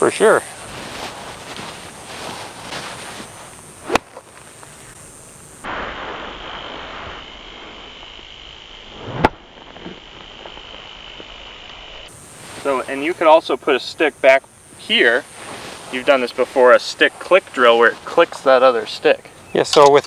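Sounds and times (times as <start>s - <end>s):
golf club swish: 1.0s - 4.3s
golf club striking ball: 3.8s - 4.4s.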